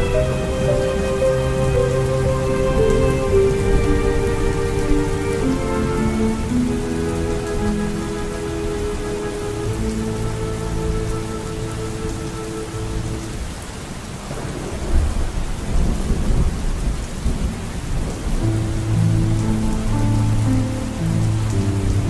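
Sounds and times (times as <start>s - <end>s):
sustained music notes: 0.0s - 13.7s, 18.3s - 22.0s
steady rain: 0.0s - 22.0s
deep peal of thunder: 14.3s - 19.2s.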